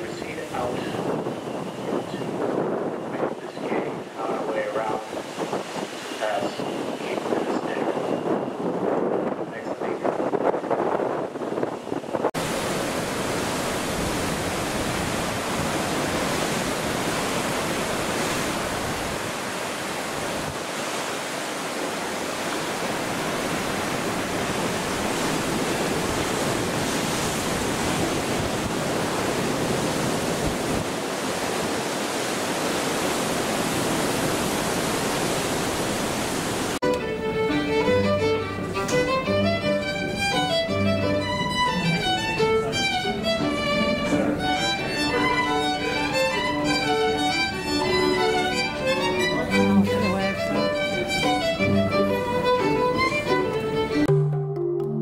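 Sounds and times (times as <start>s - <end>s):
strong wind: 0.0s - 54.1s
water churning along ship hull: 0.0s - 54.1s
string music led by violin: 36.8s - 54.3s.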